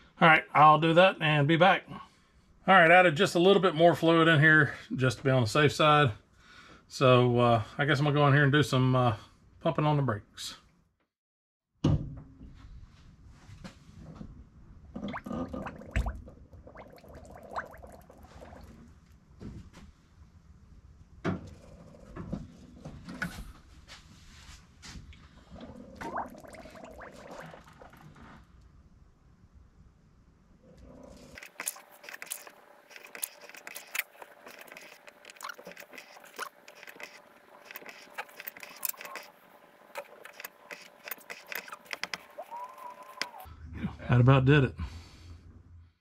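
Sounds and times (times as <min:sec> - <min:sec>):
air bubbles gurgling in fluid: 0:14.9 - 0:19.0, 0:25.5 - 0:28.2.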